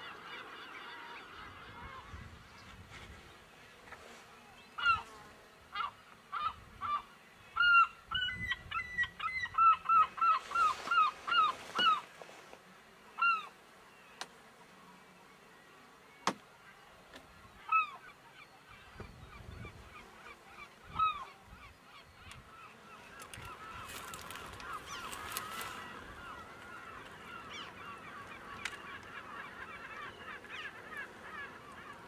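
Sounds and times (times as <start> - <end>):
gulls calling: 4.6 - 12.2, 13.1 - 14.3, 16.2 - 32.0.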